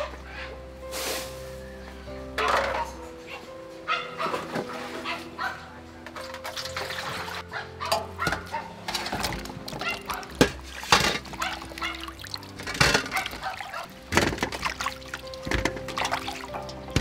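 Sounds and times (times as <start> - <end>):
water splashing in metal bowl: 6.4 - 17.0.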